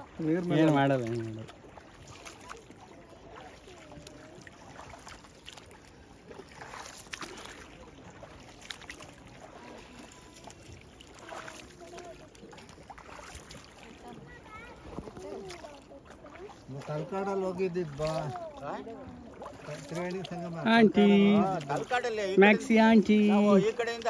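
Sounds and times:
paddle splashes: 0:00.0 - 0:24.0
water lapping: 0:00.0 - 0:24.0
faint voices: 0:07.3 - 0:24.0.

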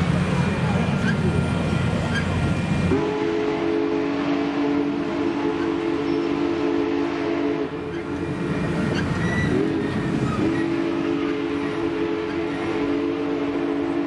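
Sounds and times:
moving train rumble: 0:00.0 - 0:14.0
steam whistle chord: 0:02.9 - 0:07.9, 0:09.4 - 0:14.0.

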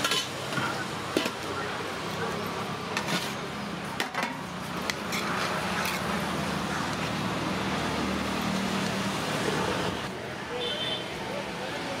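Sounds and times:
roadside traffic noise: 0:00.0 - 0:12.0.

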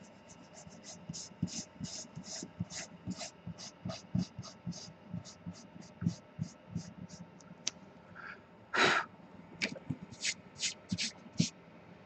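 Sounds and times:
eraser rubbing on paper: 0:00.0 - 0:07.2, 0:10.1 - 0:11.5.

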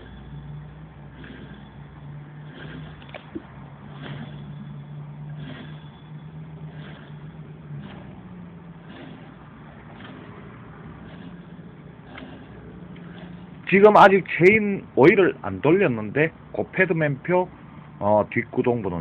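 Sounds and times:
chain whirring over sprockets: 0:00.0 - 0:14.3.

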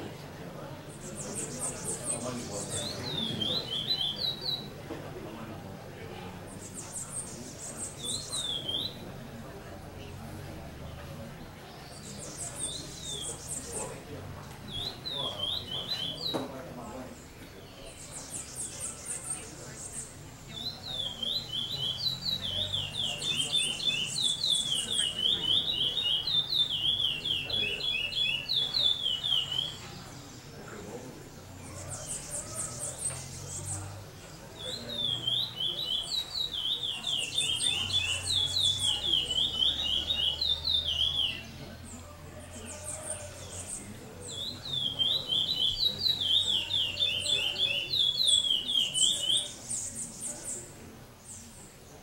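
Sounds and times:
songbird singing: 0:00.0 - 0:52.0
high bird chirps: 0:01.0 - 0:04.7, 0:06.5 - 0:09.1, 0:14.7 - 0:16.5, 0:17.3 - 0:30.4, 0:34.6 - 0:41.9, 0:42.5 - 0:50.7.

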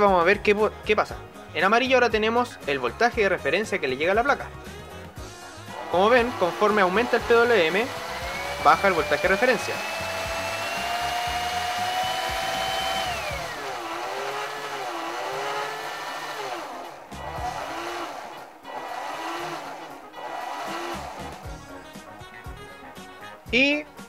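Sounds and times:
small electric motor whining: 0:05.6 - 0:21.8.

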